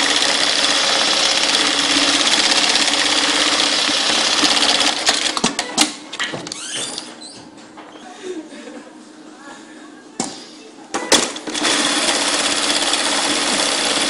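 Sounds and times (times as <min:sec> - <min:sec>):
sewing machine stitching: 0:00.0 - 0:05.6, 0:11.2 - 0:14.0.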